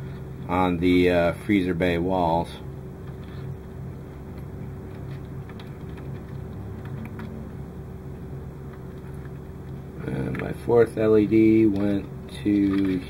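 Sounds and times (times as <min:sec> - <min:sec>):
steady low hum: 0:00.0 - 0:13.0
wires clicking against plastic: 0:04.3 - 0:07.4, 0:11.3 - 0:13.0.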